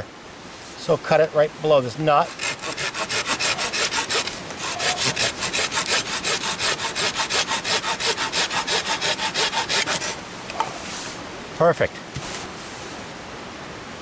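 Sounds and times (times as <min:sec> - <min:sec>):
hand saw cutting wood: 0:02.2 - 0:10.2.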